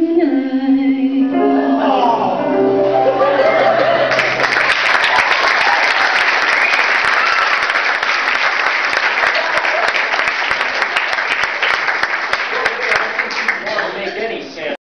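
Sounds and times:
audience applauding: 3.1s - 14.4s.

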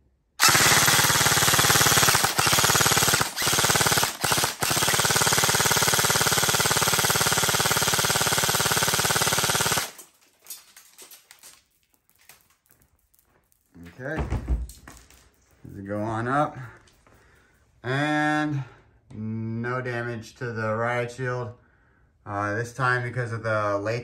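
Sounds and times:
airsoft rifle firing full auto: 0.4s - 10.1s.

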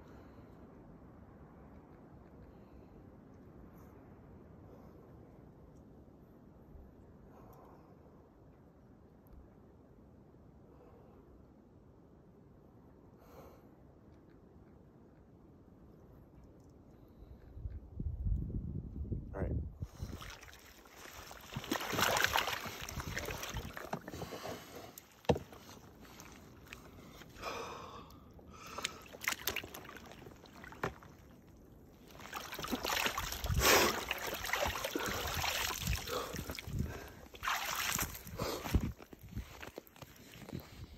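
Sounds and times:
ice water sloshing and splashing: 19.9s - 27.4s, 28.6s - 40.6s
person breathing sharply and gasping: 27.2s - 29.2s, 34.9s - 37.3s.

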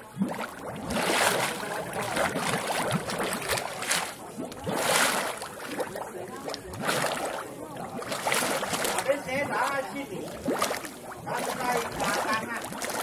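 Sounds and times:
mud bubbling and gurgling: 0.0s - 13.0s.

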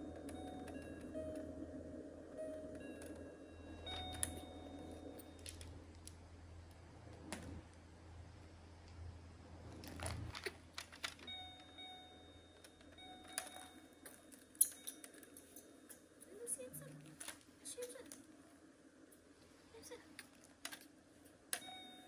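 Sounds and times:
toy piano electronic beeps: 0.0s - 5.6s, 11.2s - 15.1s, 21.6s - 22.0s.

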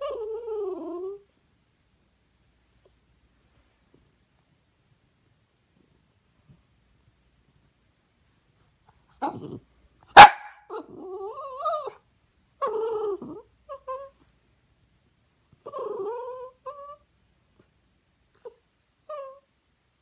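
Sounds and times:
small dog growling: 0.0s - 1.2s, 9.1s - 9.7s, 10.7s - 12.0s, 12.6s - 14.1s, 15.6s - 17.0s
dog whining and grumbling: 0.0s - 1.4s, 9.1s - 9.7s, 10.7s - 14.3s, 15.6s - 17.1s, 18.3s - 19.5s
small dog barking: 10.1s - 10.8s.

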